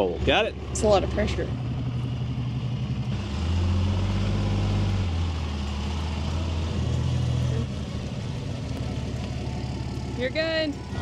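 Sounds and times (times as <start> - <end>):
diesel engine running low: 0.0 - 11.0.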